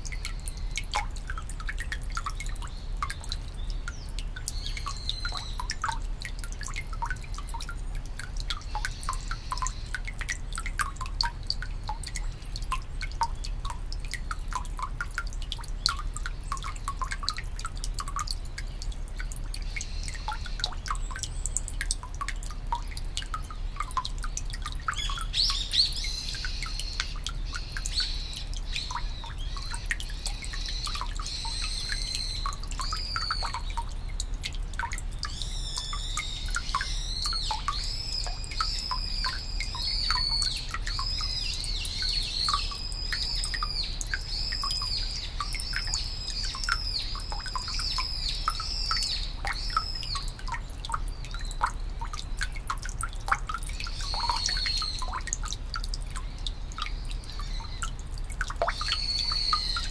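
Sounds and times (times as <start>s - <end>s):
water dripping into stone basin: 0.0s - 59.9s
small bird singing: 2.2s - 6.0s, 24.9s - 34.0s, 35.2s - 52.6s, 53.7s - 55.2s, 58.7s - 59.9s.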